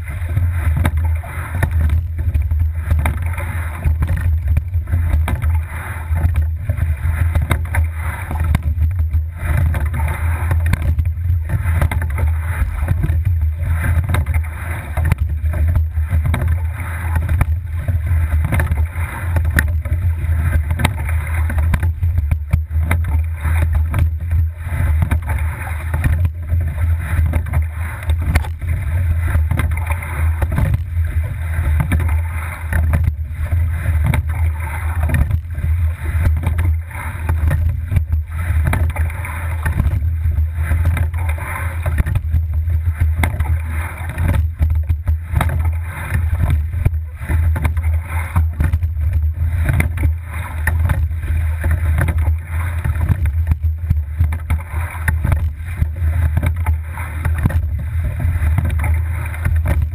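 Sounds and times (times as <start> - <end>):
water rushing along hull: 0.0 - 59.9
wind on microphone: 0.0 - 59.9.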